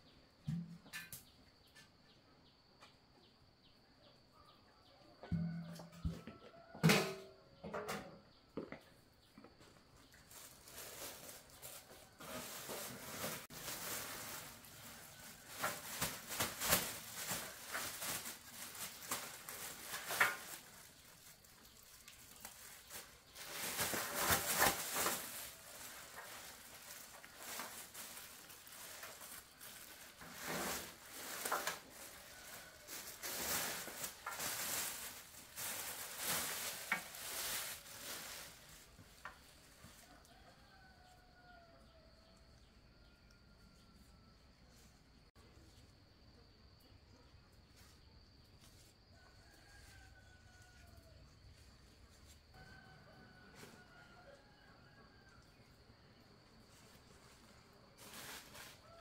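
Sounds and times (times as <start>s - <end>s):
rustling and scraping handling noises: 9.4s - 41.6s, 56.6s - 59.0s.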